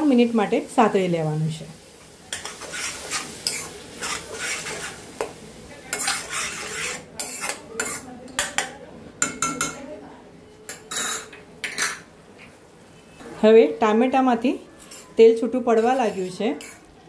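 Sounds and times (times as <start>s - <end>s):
light sizzle: 0.0s - 8.7s, 10.7s - 17.0s
spoon stirring and scraping pan: 1.8s - 9.8s, 10.6s - 12.6s, 14.7s - 16.9s.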